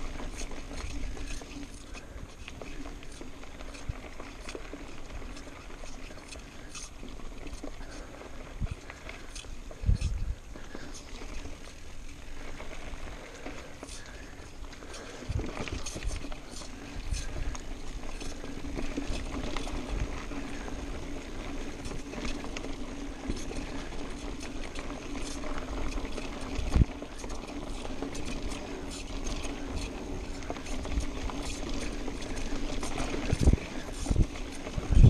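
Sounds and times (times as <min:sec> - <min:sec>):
bike frame rattling and clicking: 0:00.0 - 0:35.0
bike tyres on dirt: 0:00.0 - 0:35.0
wind on microphone: 0:09.8 - 0:10.4, 0:32.9 - 0:35.0.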